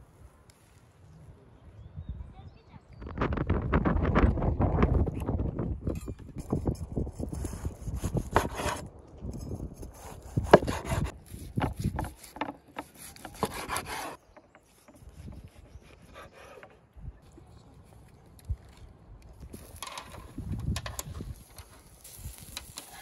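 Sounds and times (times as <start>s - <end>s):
knife scraping on wooden board: 6.0s - 16.8s.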